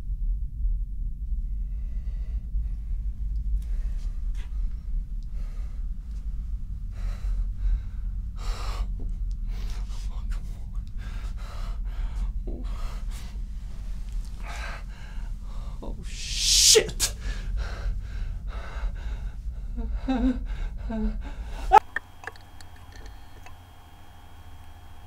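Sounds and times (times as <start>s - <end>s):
steady low hum: 0.0s - 25.0s
man gasping breaths: 14.3s - 19.8s.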